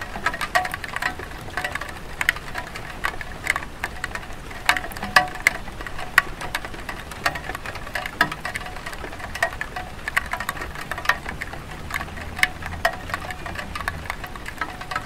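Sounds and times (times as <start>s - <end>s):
drips ticking from eaves: 0.0s - 15.0s
light rain on a tile roof: 0.0s - 15.0s.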